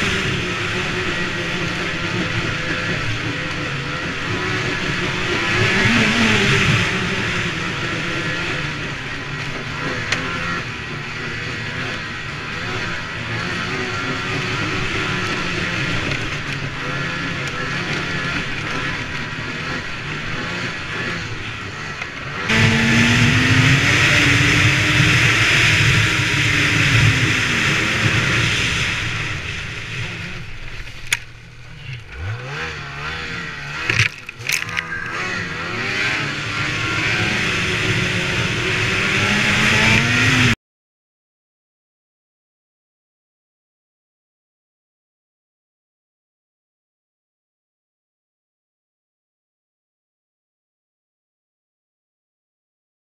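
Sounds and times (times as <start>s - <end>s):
motorcycle engine revving: 0.0s - 40.6s.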